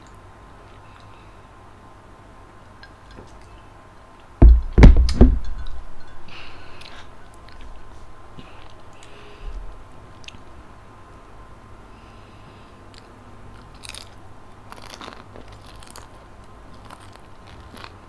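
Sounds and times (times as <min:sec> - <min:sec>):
heavy dull thumps: 0:04.4 - 0:06.4.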